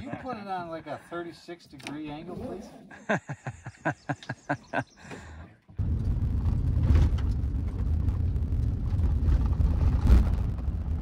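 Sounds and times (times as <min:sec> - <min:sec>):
truck driving on gravel: 0:05.8 - 0:11.0
vehicle jolts: 0:05.8 - 0:11.0.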